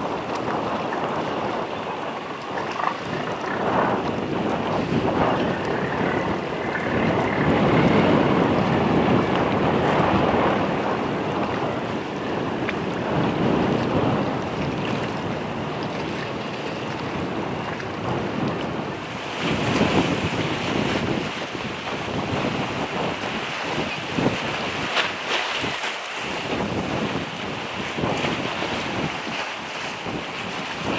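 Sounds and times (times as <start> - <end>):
choppy sea water: 0.0 - 30.9
gusty wind on microphone: 0.0 - 30.9.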